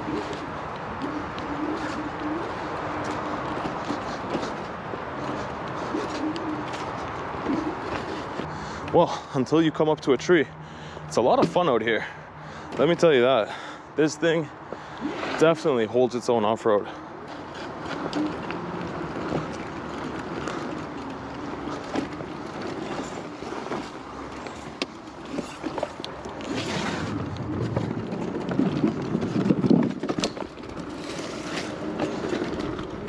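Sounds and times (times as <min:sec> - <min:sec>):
tyres rumbling on rough ground: 0:17.3 - 0:33.0.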